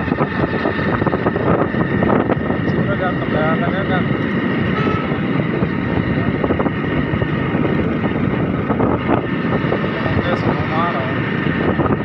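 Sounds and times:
motorcycle engine running: 0.0 - 12.0
wind noise on microphone: 0.0 - 12.0.

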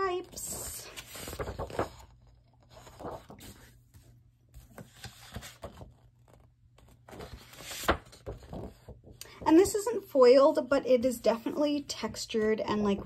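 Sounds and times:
paper sheets rustling and sliding: 0.0 - 8.9.

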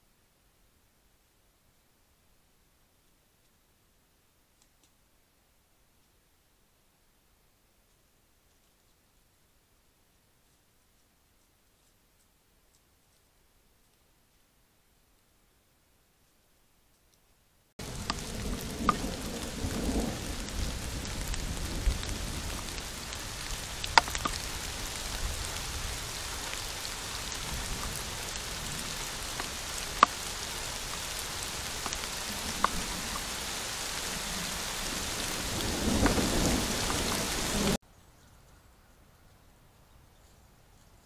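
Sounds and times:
heavy rain hissing: 17.8 - 37.8
raindrops clicking on camera: 17.8 - 37.8.

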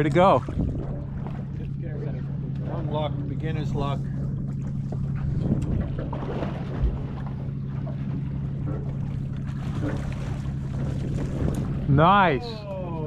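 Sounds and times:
boat engine idling: 0.0 - 13.0
wind on microphone: 0.2 - 1.4.

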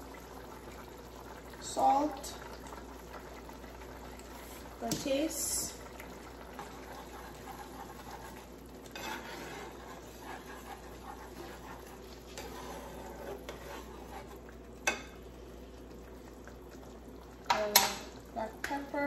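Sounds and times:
sauce bubbling: 0.0 - 19.0
spoon scraping a pan: 6.6 - 15.2.

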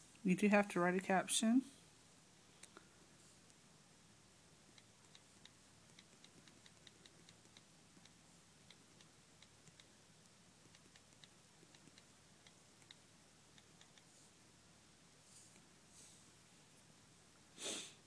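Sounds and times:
on-screen keyboard clicks: 4.7 - 14.1.

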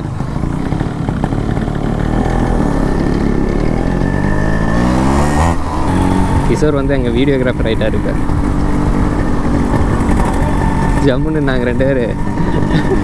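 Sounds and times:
two-stroke motorcycle engine: 0.0 - 13.0.

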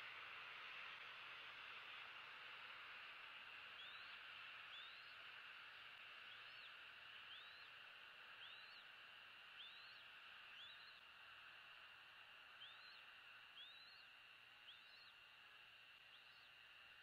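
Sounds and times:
eaglet peeping: 13.6 - 15.2.

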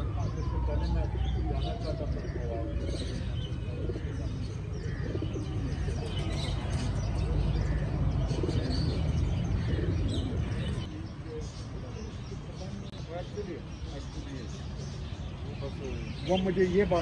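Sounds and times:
pigeons cooing: 0.0 - 13.0
small birds chirping: 0.0 - 17.0.

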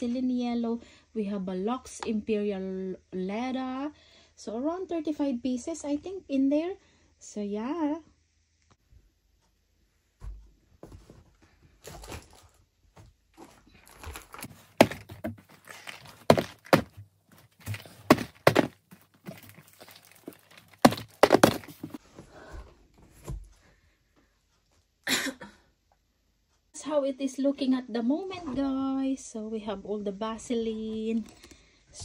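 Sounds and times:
cardboard packaging rustling: 13.4 - 22.0
soap boxes thunking on cardboard: 14.4 - 22.0.

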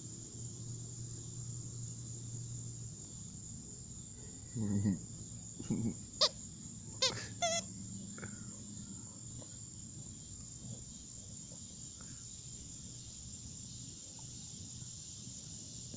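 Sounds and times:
insect chorus: 0.0 - 15.9
dog toy squeaking: 7.0 - 7.7.

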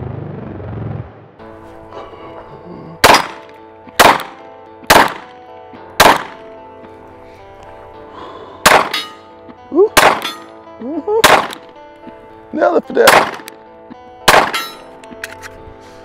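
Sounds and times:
pistol shots: 3.0 - 5.4, 6.0 - 6.5, 8.6 - 9.2, 10.0 - 10.5, 11.2 - 11.7, 13.0 - 13.6, 14.2 - 14.9.

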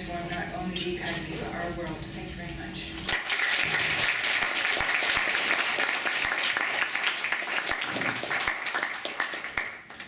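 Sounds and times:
audience applauding: 3.1 - 10.0.

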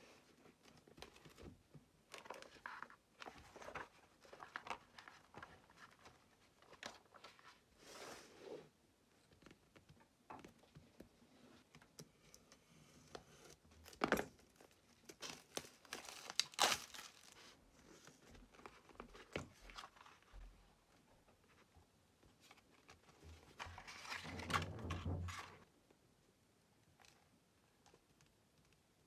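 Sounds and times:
packaging crackling and crinkling: 13.8 - 20.2.

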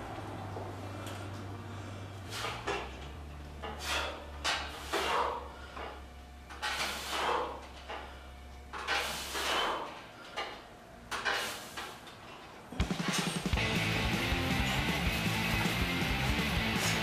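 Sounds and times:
man breathing hard: 0.8 - 2.8, 3.6 - 6.1, 6.8 - 8.4, 9.0 - 10.5, 16.6 - 17.0.

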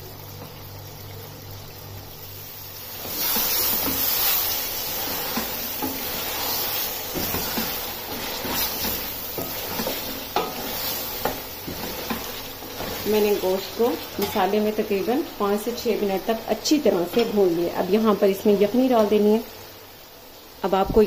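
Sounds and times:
meat sizzling in a pot: 0.0 - 21.0
wooden spatula scraping a pot: 2.9 - 13.4.

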